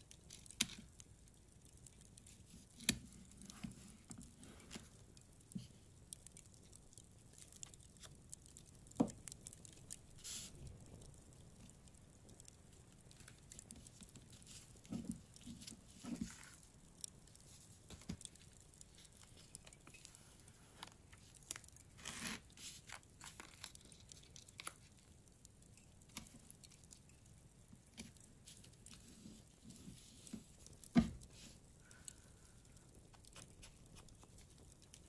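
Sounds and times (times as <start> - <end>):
bonfire crackling and popping: 0.0 - 35.0
paper rustling: 20.8 - 24.8.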